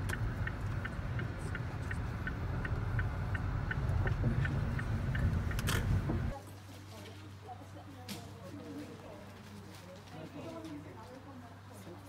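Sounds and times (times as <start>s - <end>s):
car engine and road rumble: 0.0s - 6.4s
light regular ticking: 0.0s - 6.4s.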